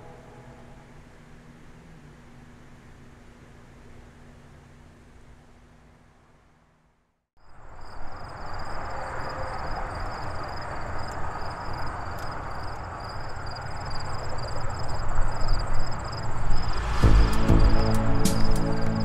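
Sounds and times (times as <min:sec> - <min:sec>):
outdoor rushing noise: 0:07.8 - 0:19.0.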